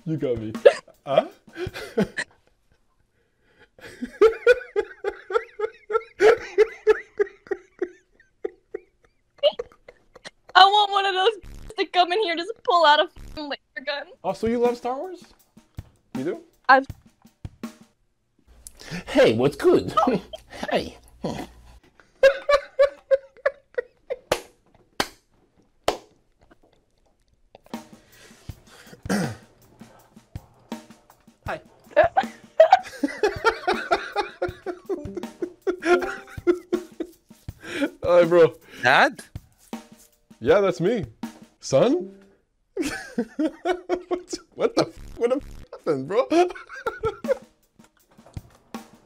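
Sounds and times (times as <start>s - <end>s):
woman laughing hard: 0.6s - 0.9s, 1.6s - 2.3s, 3.8s - 10.6s, 22.2s - 24.3s, 31.9s - 37.0s, 42.8s - 44.4s, 46.4s - 47.4s
sharp smacks: 24.3s - 26.2s.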